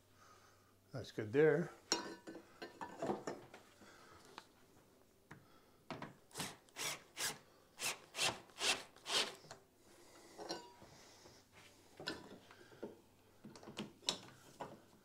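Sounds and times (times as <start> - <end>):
hand tool rasping wood: 6.4 - 9.4.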